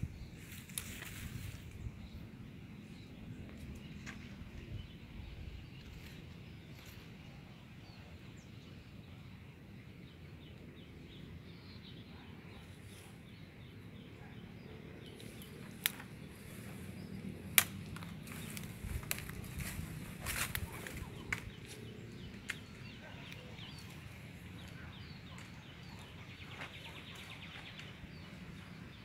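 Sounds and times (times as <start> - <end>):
branches and leaves crackling: 0.4 - 1.8, 15.1 - 24.8
sharp branch cracks: 0.5 - 1.2, 15.2 - 16.2, 17.4 - 21.5.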